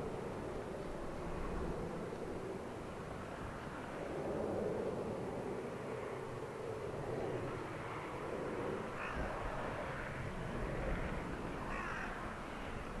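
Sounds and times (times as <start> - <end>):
jet engine distant rumble: 0.0 - 13.0
crow cawing: 9.0 - 9.3, 11.6 - 12.3.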